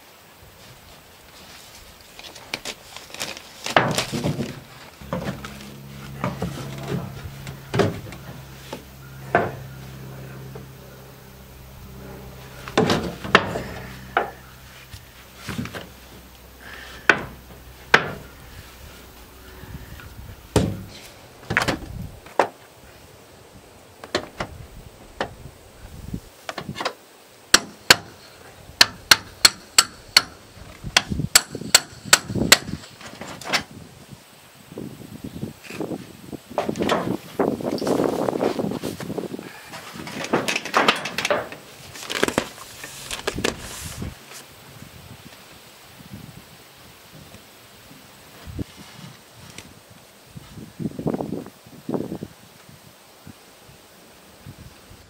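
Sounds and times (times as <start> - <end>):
low steady hum: 3.9 - 26.4
sharp hammer blows: 5.0 - 15.9.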